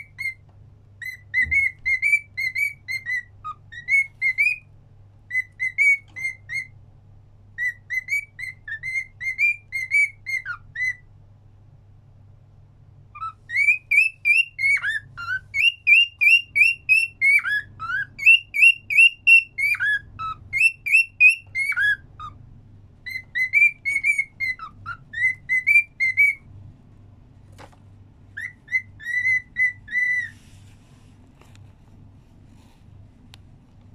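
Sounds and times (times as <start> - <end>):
cockatiel whistling a tune: 0.0 - 0.4, 1.0 - 4.7, 5.3 - 6.8, 7.6 - 11.1, 13.1 - 22.4, 23.0 - 26.5, 28.4 - 30.4.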